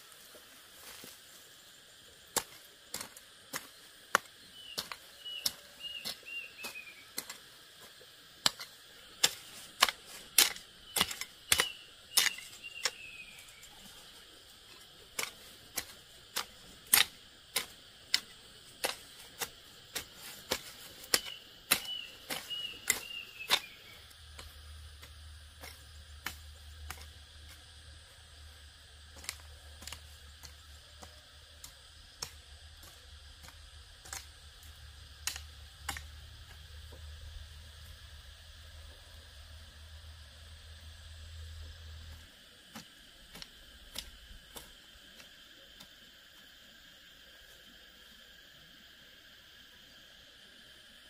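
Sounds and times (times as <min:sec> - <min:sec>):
bird chirping: 0:04.4 - 0:07.2, 0:10.8 - 0:13.9, 0:21.0 - 0:24.1.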